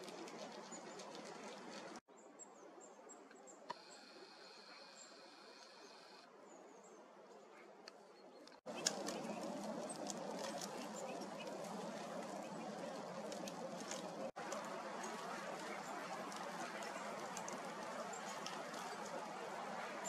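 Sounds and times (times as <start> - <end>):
small birds calling: 6.8 - 20.0.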